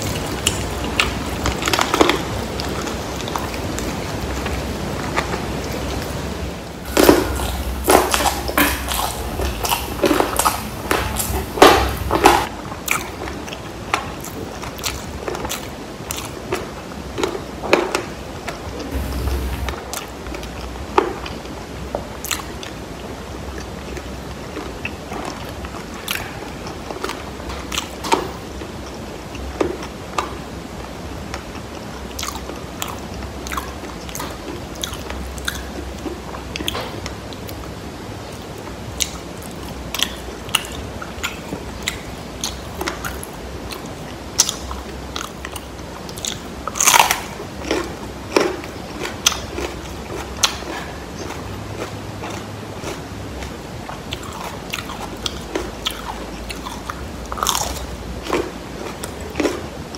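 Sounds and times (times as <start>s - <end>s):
chewing: 6.8s - 30.5s, 31.3s - 59.9s.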